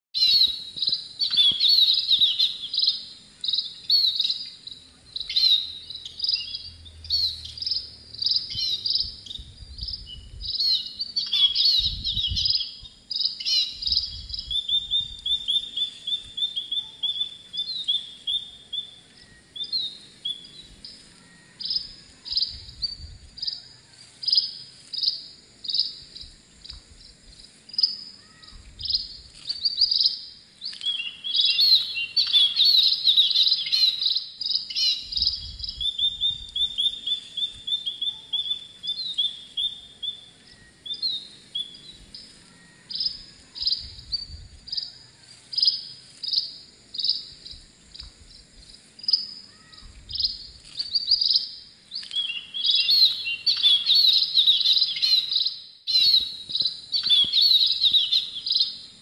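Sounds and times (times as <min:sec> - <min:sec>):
wren singing trills: 0:00.2 - 0:23.6, 0:24.2 - 0:48.1, 0:49.0 - 0:59.0.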